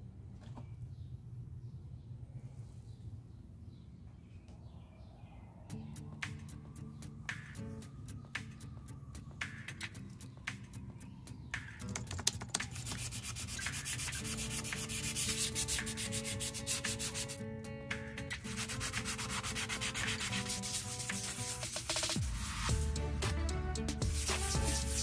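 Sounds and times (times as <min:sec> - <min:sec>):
sandpaper rubbing on metal: 0:12.6 - 0:17.4, 0:18.3 - 0:22.8, 0:24.0 - 0:25.0.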